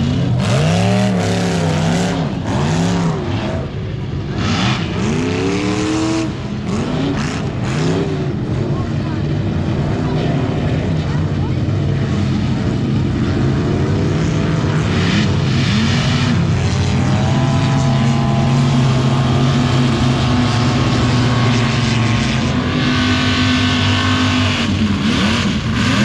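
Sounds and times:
engine revving hard: 0.0s - 3.7s, 14.5s - 26.0s.

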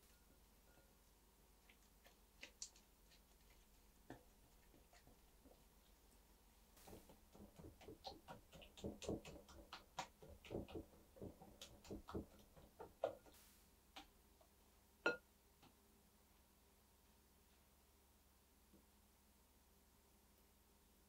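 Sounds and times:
whisk tapping in glass bowl: 6.8s - 13.4s.

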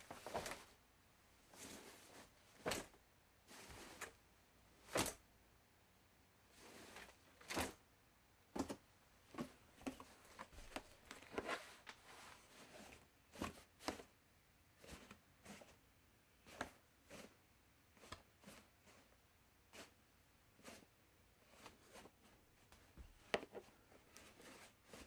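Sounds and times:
laundry basket rustling and knocking: 0.0s - 0.7s, 1.5s - 4.2s.

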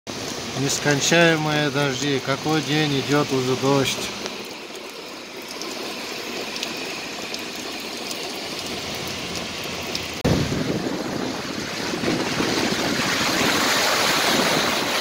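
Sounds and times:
steady rain hiss: 0.1s - 12.4s
raindrops tapping: 0.2s - 13.1s.

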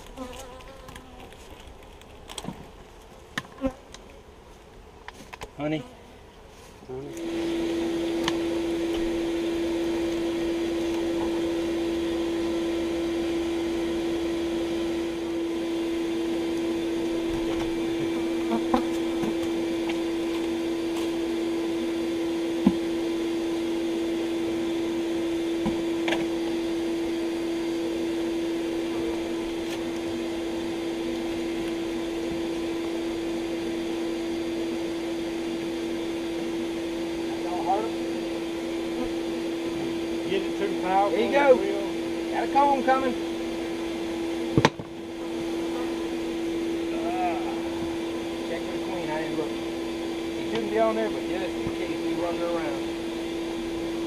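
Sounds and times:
vacuum motor hum: 5.6s - 54.0s.

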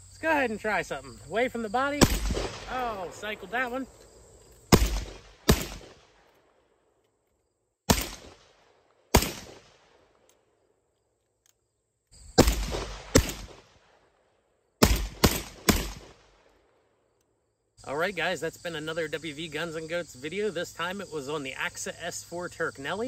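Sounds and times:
shotgun shots: 1.9s - 3.9s, 4.7s - 6.2s, 7.9s - 10.0s, 12.4s - 14.0s, 14.8s - 16.4s.

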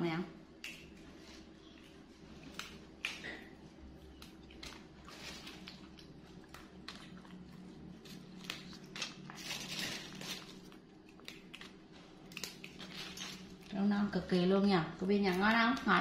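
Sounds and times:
stems snapping: 2.5s - 3.5s.

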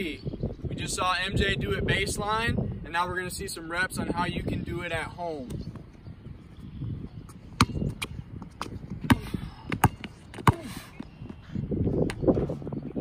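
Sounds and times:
basketball bouncing on hard court: 7.6s - 11.4s.

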